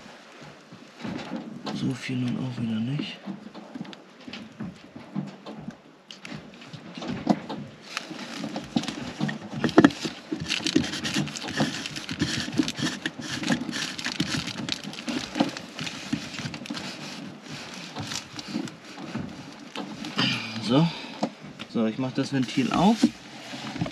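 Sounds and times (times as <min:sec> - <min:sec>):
plastic lid scraping and clicking: 0:07.2 - 0:21.4, 0:22.3 - 0:23.9.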